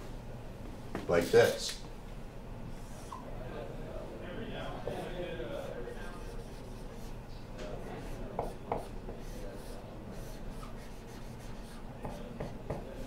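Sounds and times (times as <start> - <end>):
marker scratching on whiteboard: 4.8 - 7.2, 8.0 - 12.8.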